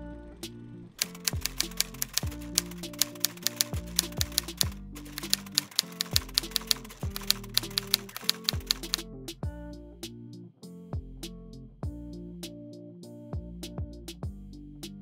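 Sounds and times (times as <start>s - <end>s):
typewriter key clicks: 1.0s - 9.0s.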